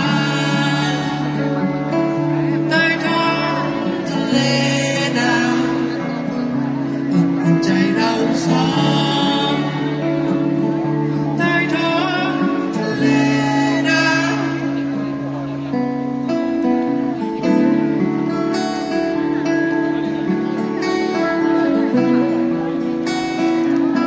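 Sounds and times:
person singing through pa: 0.0 - 1.4, 2.5 - 6.1, 7.1 - 10.1, 11.4 - 14.7
acoustic guitars strumming: 0.0 - 24.0.

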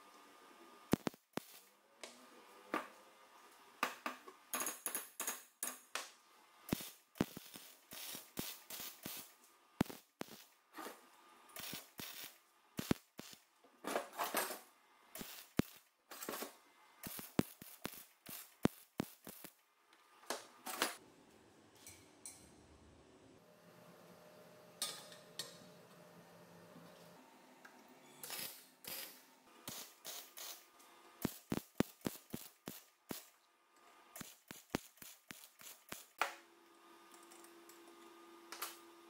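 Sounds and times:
welding arc crackling: 0.9 - 1.7, 6.7 - 10.6, 11.6 - 13.5, 15.2 - 16.4, 17.0 - 19.6, 28.2 - 33.3, 34.2 - 36.2.

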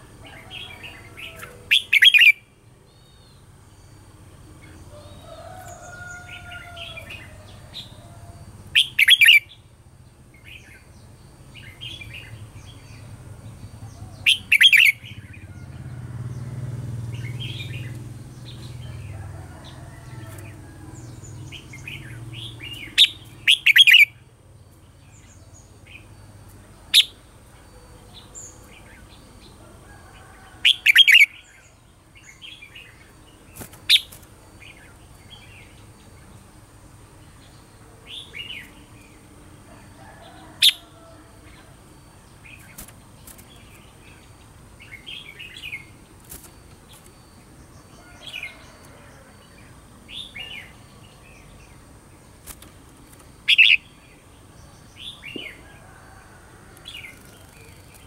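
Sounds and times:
bird song phrases: 0.0 - 36.6, 37.2 - 58.0
bird chirps and twitters: 1.4 - 2.4, 8.8 - 9.5, 14.1 - 15.3, 21.6 - 24.1, 52.6 - 54.0.

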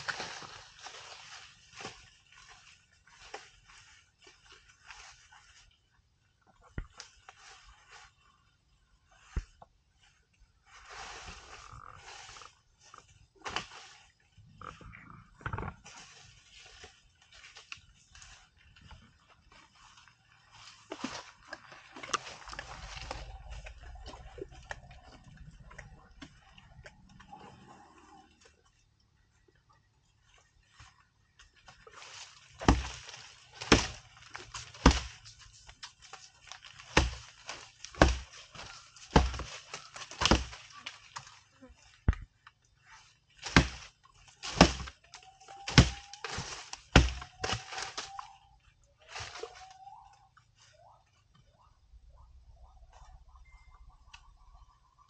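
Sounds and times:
twigs snapping and leaves crackling: 0.0 - 5.8, 10.8 - 28.5, 30.3 - 50.6
vegetation cracking and thudding: 11.3 - 14.0, 31.6 - 41.4, 43.2 - 48.4
low elephant rumble: 22.4 - 28.8
thin whistling tone: 47.8 - 51.1, 52.2 - 55.0.

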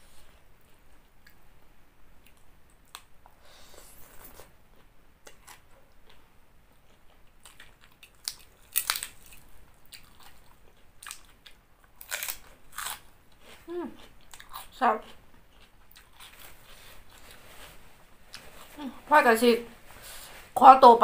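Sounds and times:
person chewing: 2.2 - 18.8
crunchy bites: 7.4 - 10.4, 11.0 - 13.1.

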